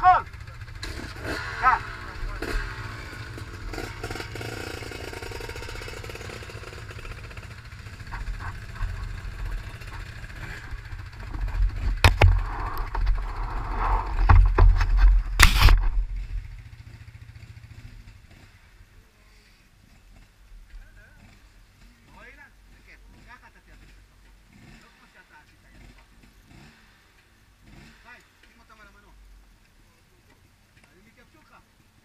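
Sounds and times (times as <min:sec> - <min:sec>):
atv engines idling: 0:00.0 - 0:32.0
knocks and rubbing on camera: 0:14.1 - 0:16.0.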